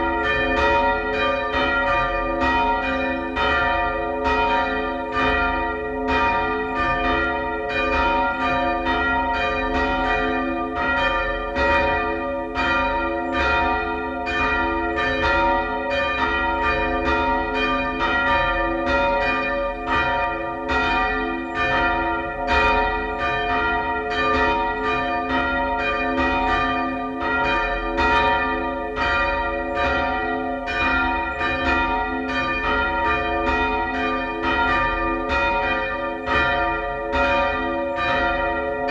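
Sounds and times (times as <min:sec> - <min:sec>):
church bells pealing: 0:00.0 - 0:38.9.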